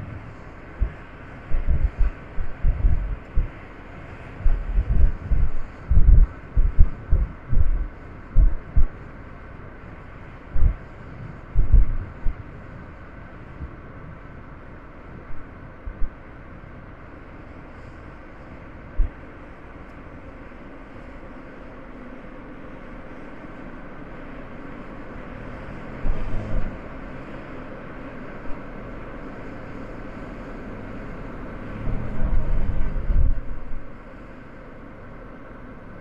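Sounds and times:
low thumps: 0:00.0 - 0:03.6, 0:04.4 - 0:09.0, 0:10.5 - 0:10.8, 0:11.6 - 0:12.4
car road and engine noise: 0:00.0 - 0:36.0.

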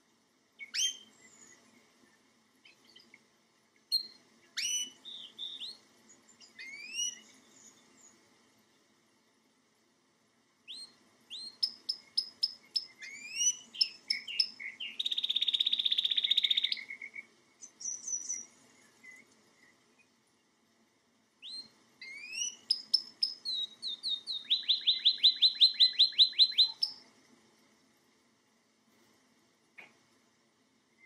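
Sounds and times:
canary singing: 0:00.6 - 0:01.6, 0:03.9 - 0:05.8, 0:06.4 - 0:07.8, 0:10.7 - 0:19.3, 0:21.4 - 0:27.0.

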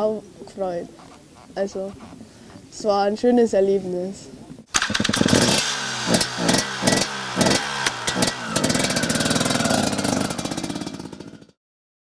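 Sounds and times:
motocross bike engine revving: 0:04.7 - 0:11.6.

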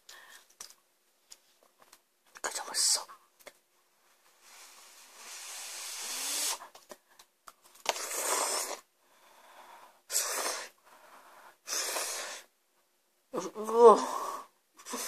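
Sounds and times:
person slurping noodles: 0:05.2 - 0:06.6, 0:07.9 - 0:08.8.

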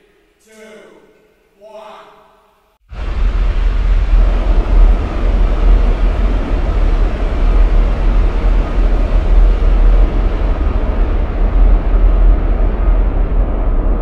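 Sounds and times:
rocket engines roaring: 0:02.9 - 0:14.0.

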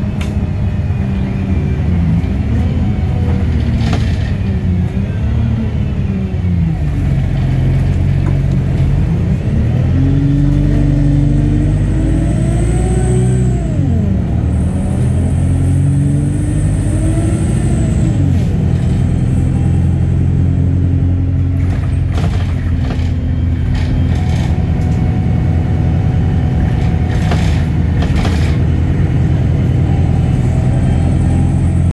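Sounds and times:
bus diesel engine accelerating: 0:00.0 - 0:32.0.

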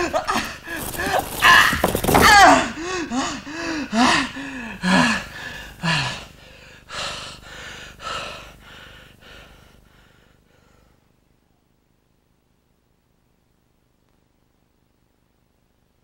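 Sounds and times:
man groaning with effort: 0:00.0 - 0:06.2
man gasping heavily: 0:02.6 - 0:11.0.

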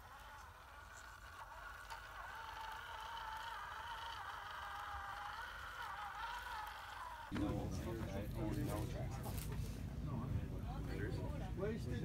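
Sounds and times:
toy truck electric motor whining: 0:00.0 - 0:07.3.

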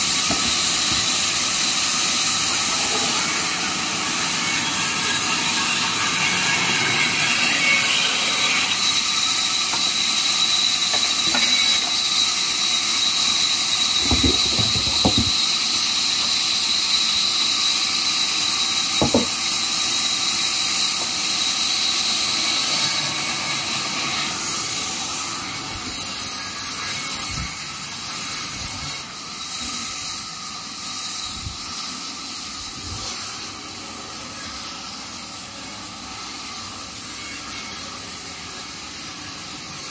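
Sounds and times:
band saw cutting timber: 0:00.0 - 0:39.9
knocks of wood being handled: 0:14.0 - 0:15.4, 0:19.0 - 0:19.4.

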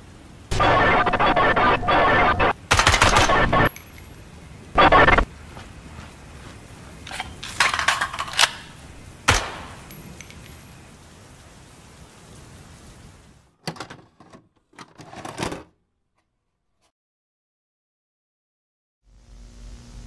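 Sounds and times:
short crackling bursts: 0:00.5 - 0:03.7, 0:04.7 - 0:07.5
steady hiss: 0:03.3 - 0:07.9, 0:08.6 - 0:13.6.

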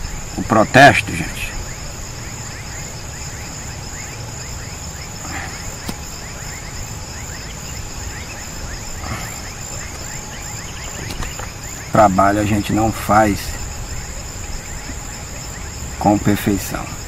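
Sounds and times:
insects chirring: 0:00.0 - 0:17.0
sharp click: 0:05.8 - 0:06.1.

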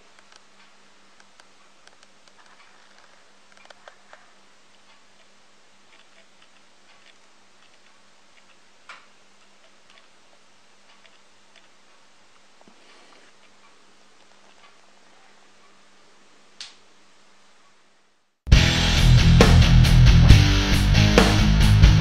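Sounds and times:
light clicks and ticks: 0:00.0 - 0:15.8
faint steady hum: 0:00.0 - 0:22.0.

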